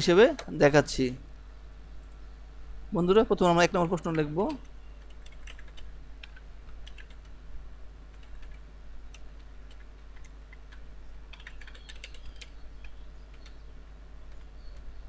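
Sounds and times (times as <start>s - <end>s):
low steady hum: 0.0s - 15.0s
keyboard typing: 3.7s - 7.4s, 8.1s - 13.6s, 14.2s - 14.9s.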